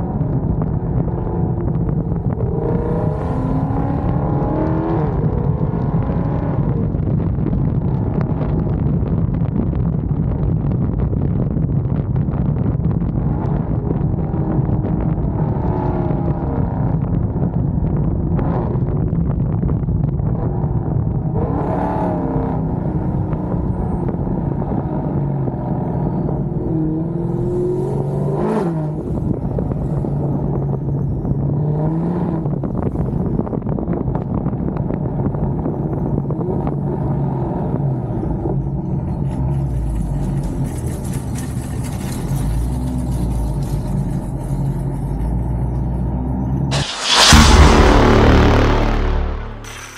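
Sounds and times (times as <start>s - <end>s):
car engine while driving: 0.0s - 49.4s.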